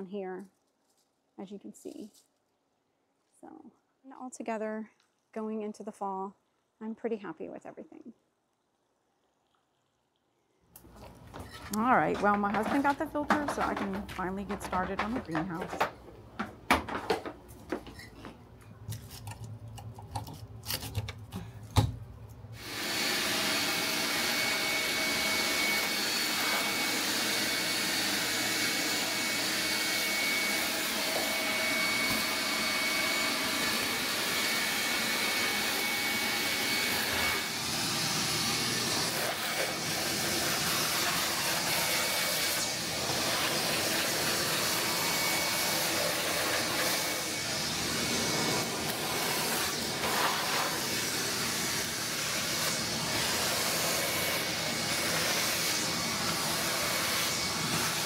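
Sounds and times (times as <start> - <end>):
shop vacuum running: 11.0 - 17.3, 22.6 - 58.0
clicks and knocks: 11.0 - 18.0.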